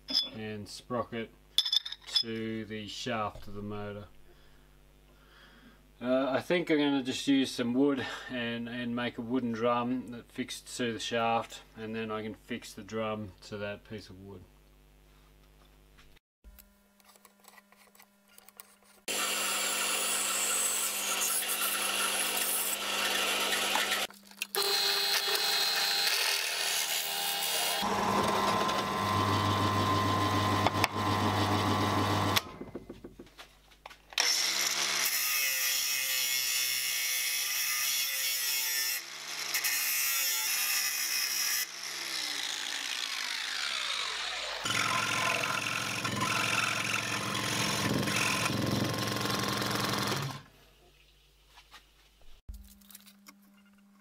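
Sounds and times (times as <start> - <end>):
scroll saw cutting: 18.6 - 32.6, 34.2 - 50.5
drill press boring wood: 19.1 - 32.8, 41.7 - 50.5
motor winding down: 27.8 - 32.5.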